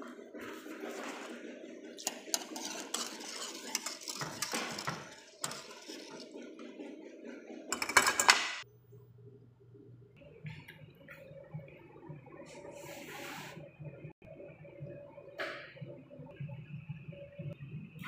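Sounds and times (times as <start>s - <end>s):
whisk clicking and scraping pot: 0.4s - 6.8s.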